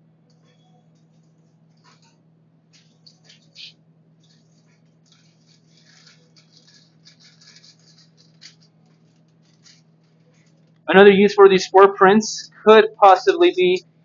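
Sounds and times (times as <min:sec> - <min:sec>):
aluminum foil crinkling: 0:01.0 - 0:10.8
scissors cutting foil: 0:02.8 - 0:10.8.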